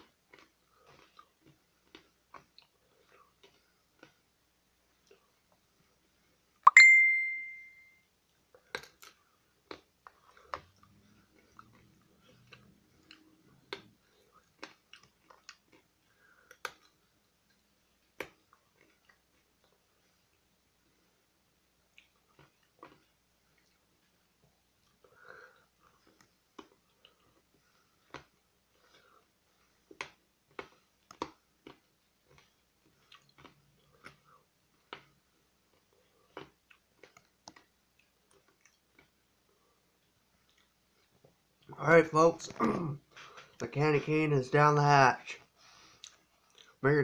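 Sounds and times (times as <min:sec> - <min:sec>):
chewing clicks: 0:08.6 - 0:19.8, 0:29.9 - 0:35.1, 0:35.7 - 0:39.2, 0:46.0 - 0:46.8.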